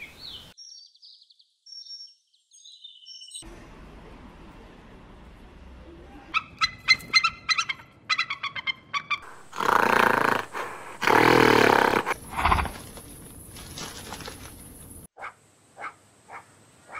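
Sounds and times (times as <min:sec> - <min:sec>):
animal calls: 0:06.2 - 0:12.9.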